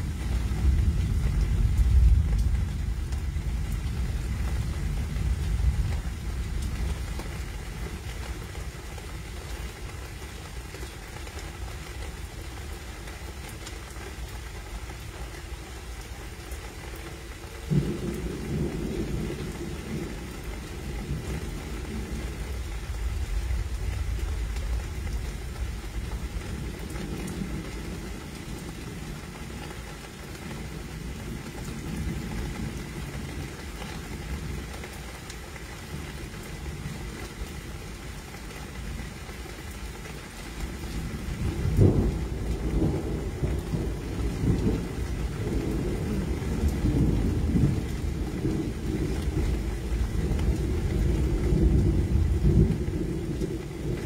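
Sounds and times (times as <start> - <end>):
rumble of thunder: 0.0 - 8.9, 17.6 - 29.3, 40.7 - 54.0
rain: 0.0 - 54.0.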